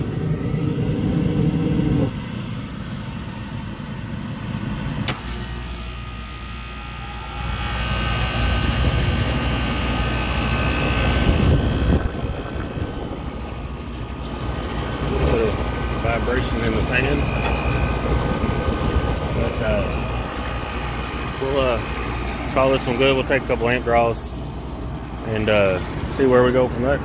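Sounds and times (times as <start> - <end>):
fan and machine noise: 0.0 - 27.0
lower hum: 0.0 - 27.0
motor hum: 0.0 - 27.0.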